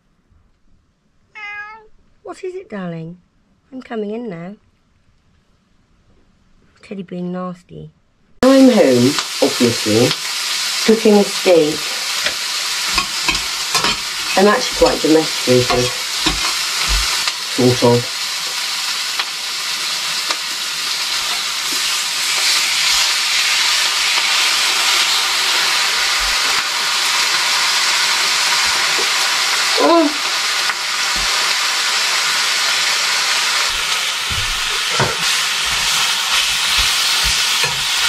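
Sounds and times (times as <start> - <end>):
steak sizzling in frying pan: 8.4 - 38.0.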